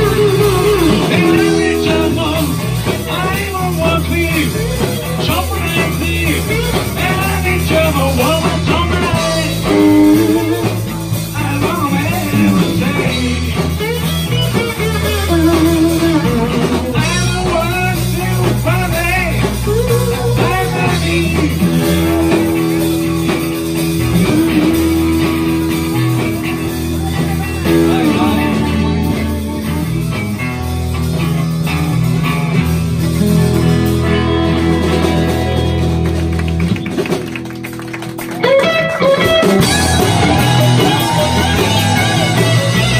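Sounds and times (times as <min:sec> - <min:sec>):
lead guitar melody: 0:00.0 - 0:42.9
live rock band playing: 0:00.0 - 0:42.9.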